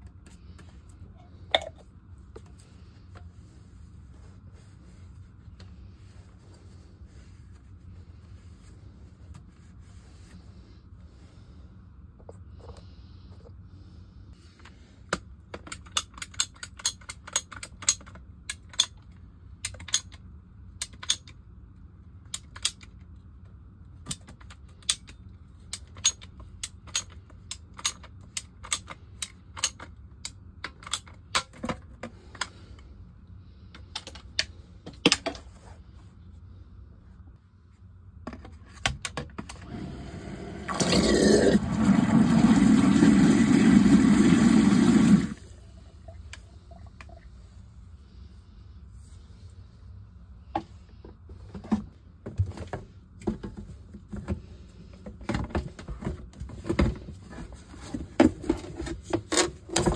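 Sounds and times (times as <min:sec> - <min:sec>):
sump pump running: 0:39.6 - 0:45.6.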